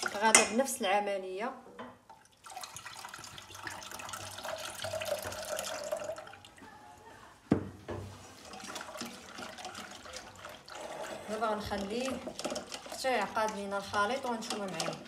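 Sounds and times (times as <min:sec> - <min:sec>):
milk pouring into saucepan: 0:02.1 - 0:06.6, 0:08.1 - 0:15.0
whisk stirring in pan: 0:08.1 - 0:15.0.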